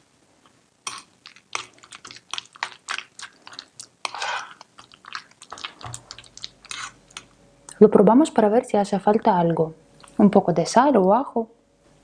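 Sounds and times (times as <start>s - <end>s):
wet squelches: 0.9s - 7.8s.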